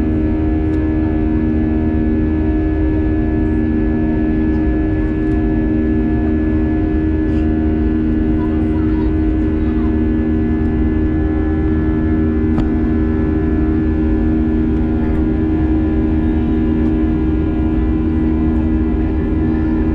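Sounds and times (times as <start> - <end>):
jet cabin engine rumble: 0.0 - 19.9.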